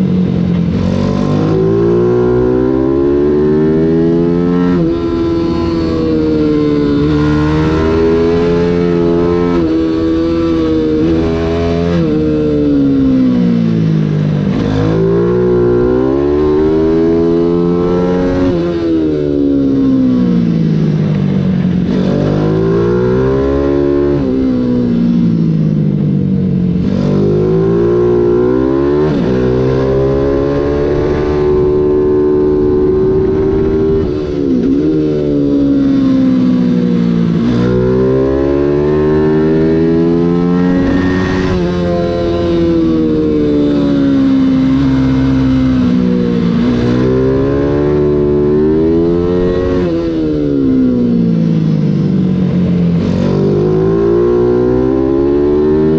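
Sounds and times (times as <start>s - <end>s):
race bike engine revving: 37.2s - 51.4s, 52.9s - 55.9s.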